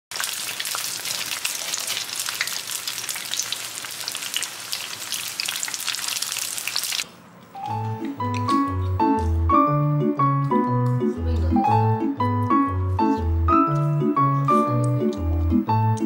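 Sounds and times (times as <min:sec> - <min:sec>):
food deep-frying in hot oil: 0:00.1 - 0:07.1.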